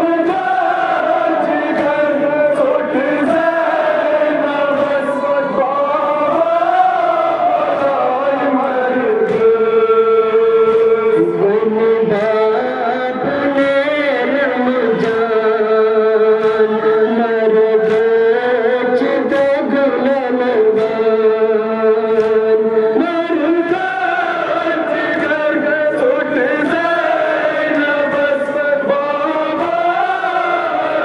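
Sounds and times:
man chanting through a loudspeaker: 0.0s - 31.0s
chest-beating slaps: 22.2s - 22.4s.

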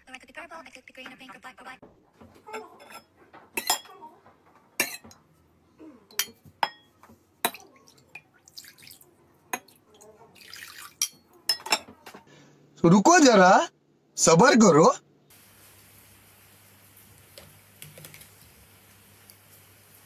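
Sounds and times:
metal ladle clinking ceramic bowls: 2.5s - 3.9s, 4.8s - 5.2s, 6.1s - 6.9s, 10.5s - 11.9s
water trickling into bowl: 7.5s - 11.2s.

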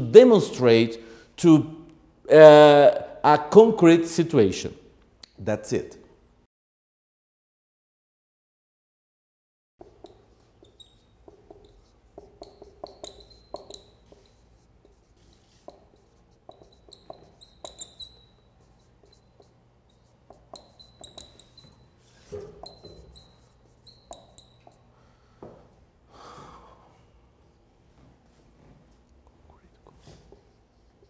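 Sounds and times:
marker squeaking on whiteboard: 9.8s - 24.9s, 29.5s - 31.0s.

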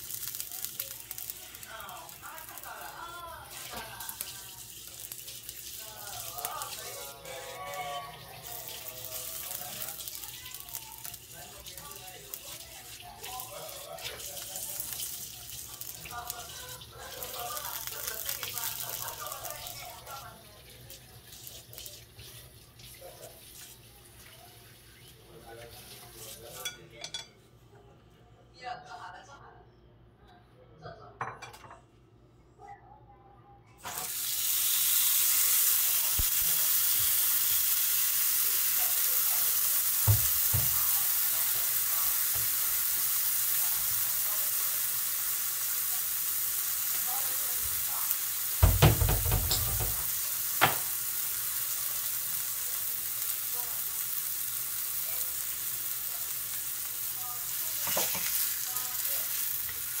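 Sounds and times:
steak sizzling in oil: 0.0s - 26.8s, 33.9s - 60.0s.

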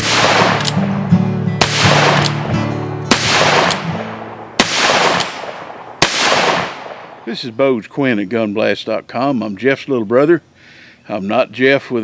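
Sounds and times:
revolver shots: 1.6s - 7.2s.

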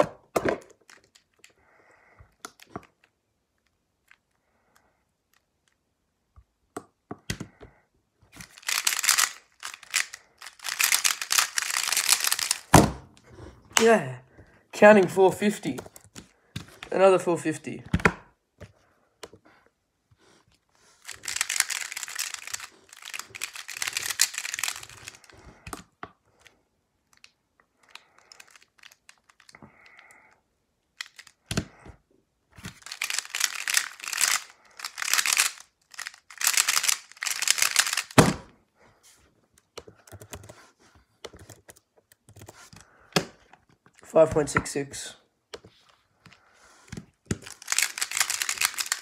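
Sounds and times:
plastic puzzle cube clacking: 2.3s - 4.4s, 8.4s - 12.9s, 21.0s - 26.5s, 27.1s - 30.1s, 30.9s - 31.7s, 32.6s - 38.5s, 45.6s - 49.0s.

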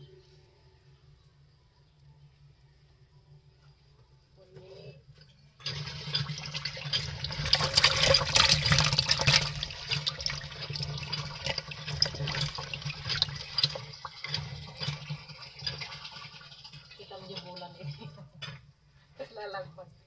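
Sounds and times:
fish splashing in water: 5.7s - 14.9s.

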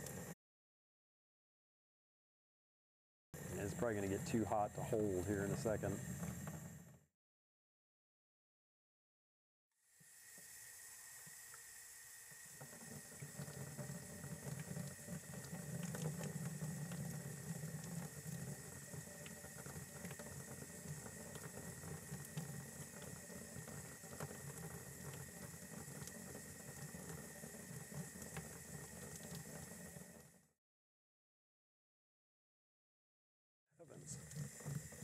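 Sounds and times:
faucet water splashing into sink: 10.2s - 30.2s, 34.0s - 35.0s.

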